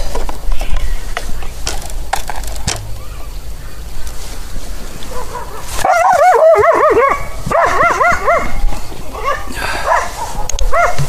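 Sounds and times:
animal high calls: 5.1 - 11.0.

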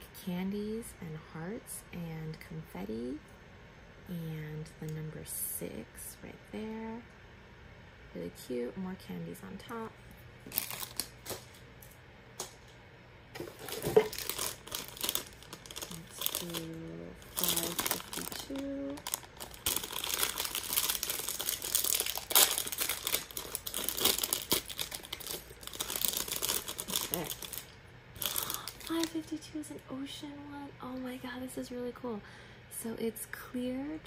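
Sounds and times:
plastic packet crinkling: 10.4 - 12.6, 13.4 - 29.3.

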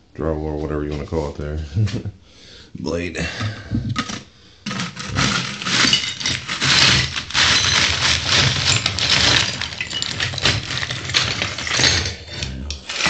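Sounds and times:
tile shards clattering and scraping: 3.3 - 13.0.

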